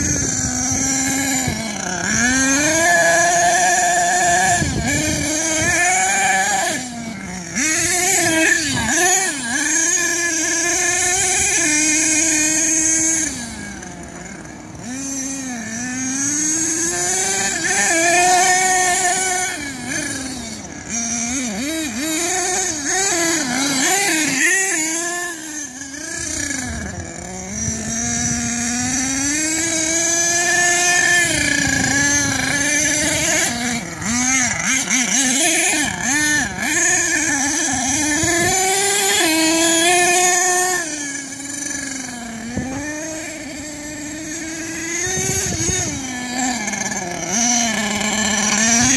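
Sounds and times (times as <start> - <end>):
rc truck engine revving: 0.0 - 48.9.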